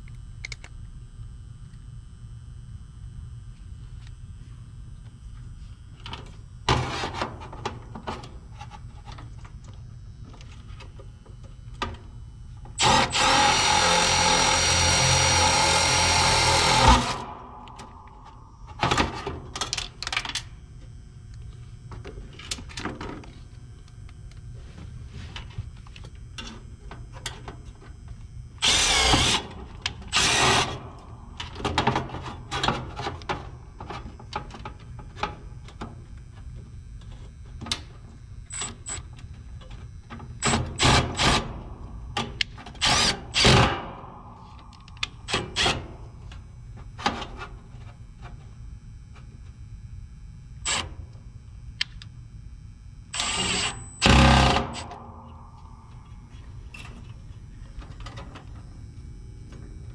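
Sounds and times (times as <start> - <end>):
cordless drill driving screw: 12.8 - 17.3, 28.6 - 29.4, 30.1 - 30.7, 53.2 - 54.8.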